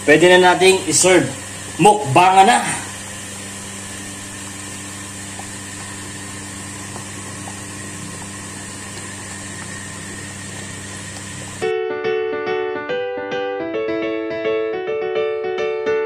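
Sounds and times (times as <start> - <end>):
machine hum with hiss: 0.0 - 11.7
soup simmering with soft pops: 4.4 - 11.6.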